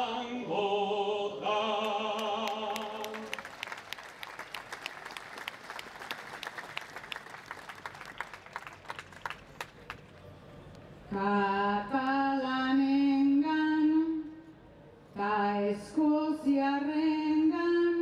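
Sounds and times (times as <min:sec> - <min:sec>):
audience applause: 0:02.4 - 0:10.0.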